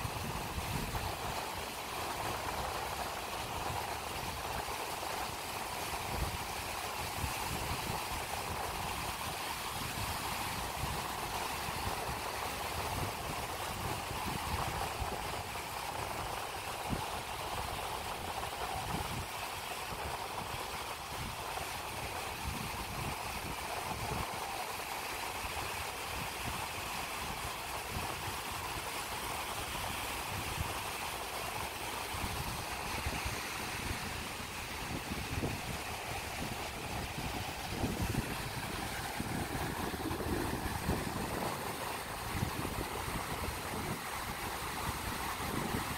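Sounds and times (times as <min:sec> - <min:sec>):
small waves breaking on sand: 0:00.0 - 0:45.9
low fluttering rumble: 0:34.4 - 0:43.8.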